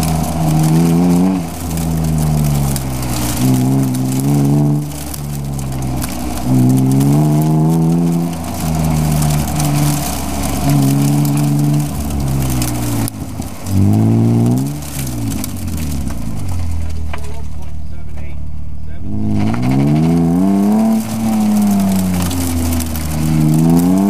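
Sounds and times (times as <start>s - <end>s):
car engine accelerating: 0.0s - 24.0s.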